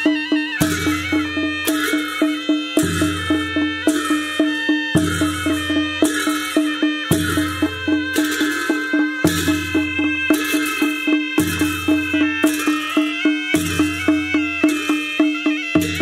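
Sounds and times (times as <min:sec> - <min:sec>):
barrel drum beating: 0:00.0 - 0:16.0
brass hand cymbals: 0:00.0 - 0:16.0
shawms playing reedy melody: 0:00.0 - 0:16.0.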